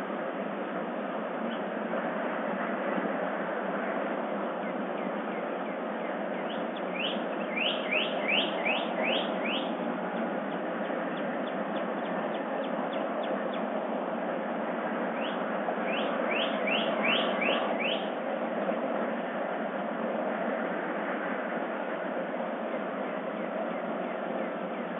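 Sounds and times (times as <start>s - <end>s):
steady background hiss: 0.0s - 24.9s
songbird singing: 4.4s - 13.8s, 15.1s - 18.2s
faint bird calls: 4.6s - 13.7s, 15.2s - 18.2s.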